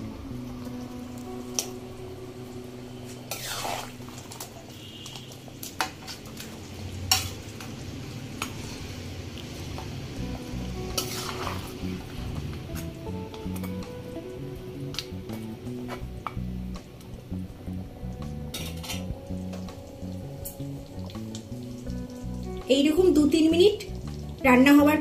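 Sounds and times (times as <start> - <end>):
spatula stirring and scraping: 3.3 - 7.7, 10.9 - 12.9.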